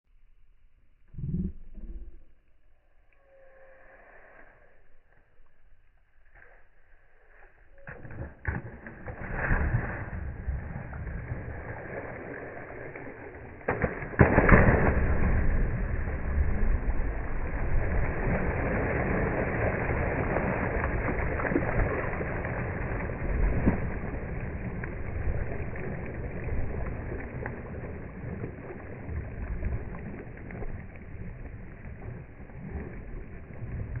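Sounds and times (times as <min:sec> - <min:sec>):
dog splashing through water: 0:06.2 - 0:34.0.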